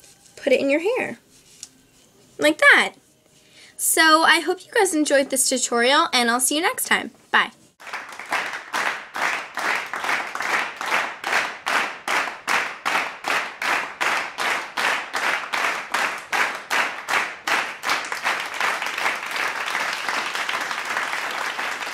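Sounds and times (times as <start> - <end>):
applause: 7.8 - 21.9
rhythmic hand clapping: 7.8 - 21.9.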